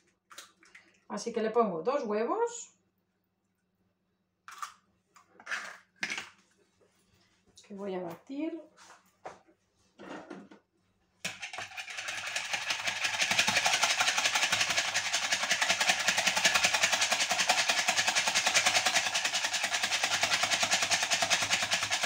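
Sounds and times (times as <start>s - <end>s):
whisk beating eggs in plastic bowl: 11.3s - 22.0s.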